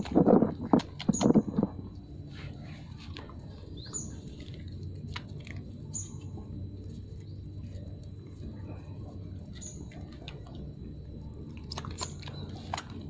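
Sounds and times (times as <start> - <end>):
low hum: 0.0 - 13.0
puppies suckling smacking clicks: 11.5 - 13.0.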